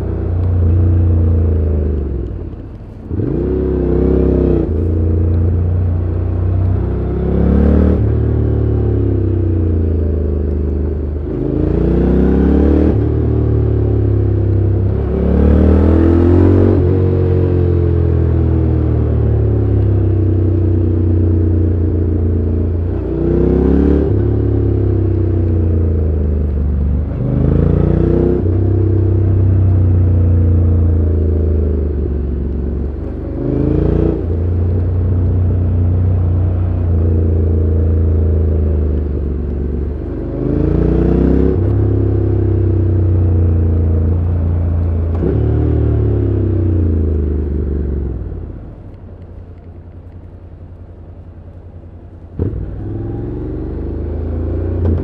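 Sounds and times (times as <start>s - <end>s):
motorcycle engine revving: 0.0s - 49.0s, 52.3s - 55.0s.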